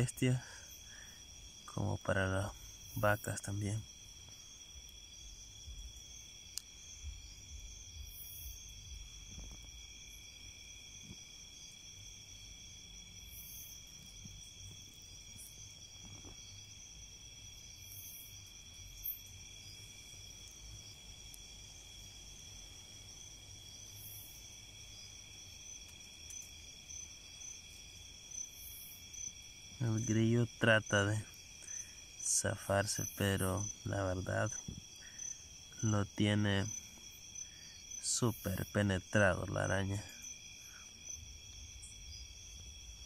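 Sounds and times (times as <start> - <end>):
night insects trilling: 0.0 - 43.0.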